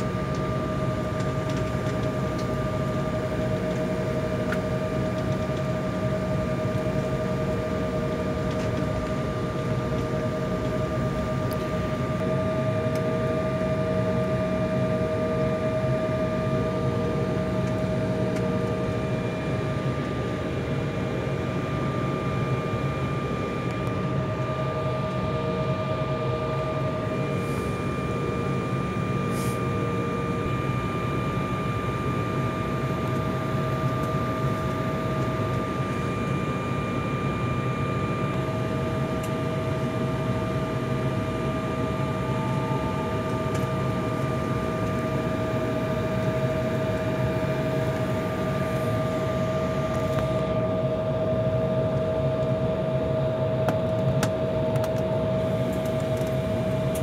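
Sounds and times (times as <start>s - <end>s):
cabin ventilation: 0.0s - 57.0s
jet engines idling: 0.0s - 57.0s
steady high whine: 0.0s - 57.0s.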